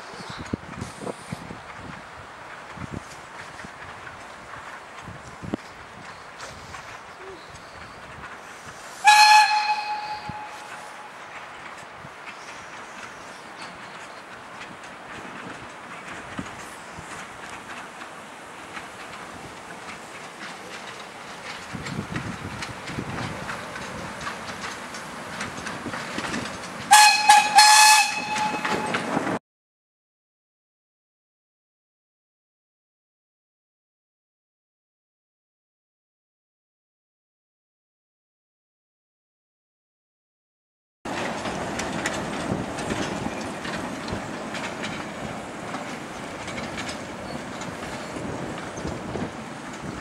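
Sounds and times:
train running rumble: 0:00.0 - 0:29.4, 0:41.1 - 0:50.0
wheels clattering on track: 0:00.0 - 0:29.4, 0:41.1 - 0:50.0
steam whistle blasts: 0:09.0 - 0:11.0, 0:26.9 - 0:29.0.

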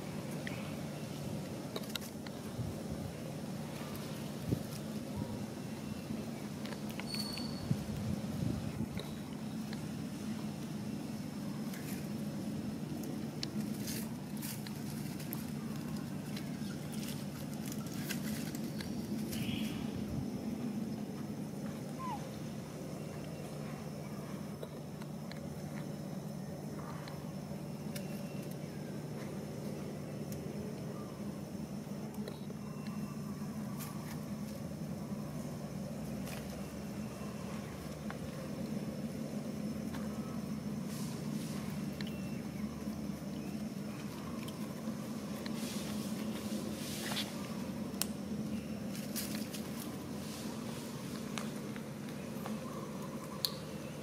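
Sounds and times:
steady low hum: 0:00.0 - 0:54.0
light clicks and rustles: 0:12.9 - 0:19.5.

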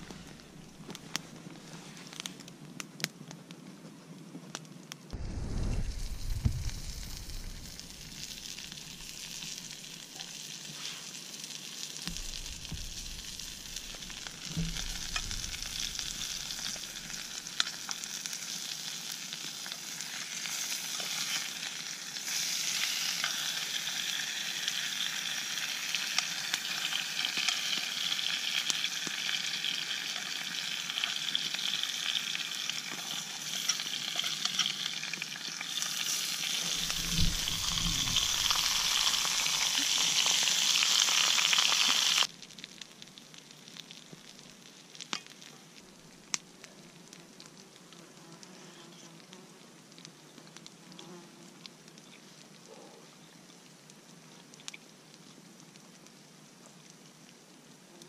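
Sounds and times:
sharp crackles: 0:00.0 - 0:57.5
food sizzling in a pan: 0:05.4 - 0:42.3.

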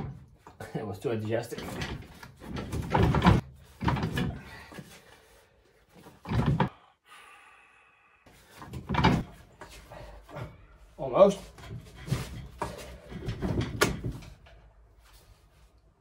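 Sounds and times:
heavy metal parts clunking: 0:00.0 - 0:04.9, 0:08.5 - 0:10.6, 0:11.3 - 0:14.7.

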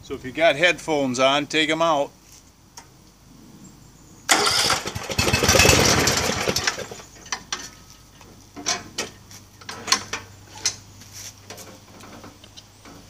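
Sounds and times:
riding mower engine running: 0:04.3 - 0:07.8.

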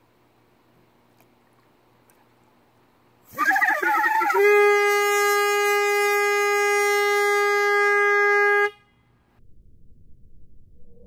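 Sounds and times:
warbling air horn note: 0:03.3 - 0:08.9
air horn blaring: 0:03.3 - 0:09.1.

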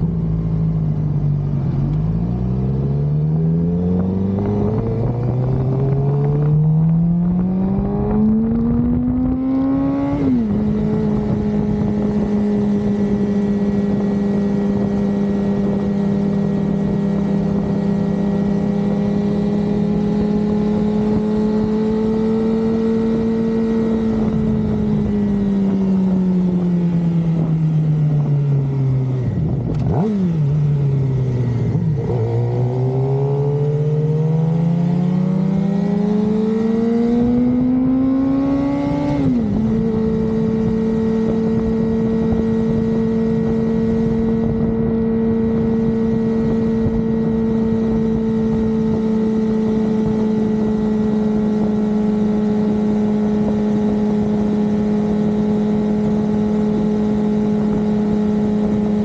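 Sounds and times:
motorcycle engine revving: 0:00.0 - 0:59.0
wind rushing over microphone: 0:02.1 - 0:59.0.

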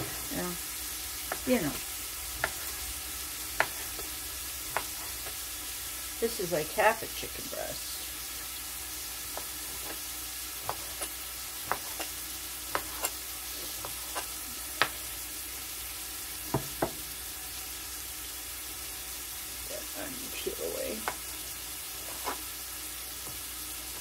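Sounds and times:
onion sizzling in saucepan: 0:00.0 - 0:24.0
knife chopping on cutting board: 0:02.4 - 0:02.8, 0:03.6 - 0:05.4, 0:10.6 - 0:15.0, 0:16.5 - 0:17.0, 0:22.0 - 0:22.5.

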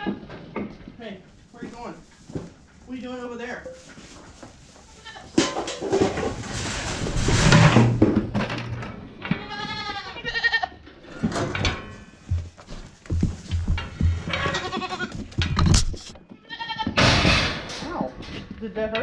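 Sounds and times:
goat kids bleating: 0:04.8 - 0:05.4, 0:09.3 - 0:10.8, 0:14.4 - 0:15.2, 0:16.3 - 0:17.0
goats knocking metal gates: 0:05.3 - 0:09.9, 0:11.1 - 0:12.5, 0:13.2 - 0:16.0, 0:16.9 - 0:18.0.

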